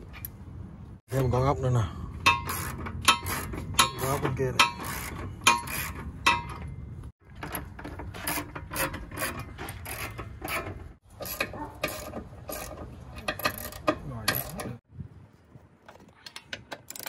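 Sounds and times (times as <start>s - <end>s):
metal bolts clinking: 2.2s - 14.8s
ratchet wrench clicking: 2.3s - 6.4s, 16.4s - 17.0s.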